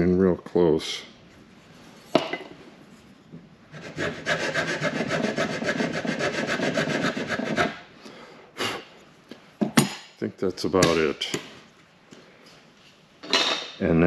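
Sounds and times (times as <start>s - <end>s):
file rasping on wood: 3.7s - 7.8s.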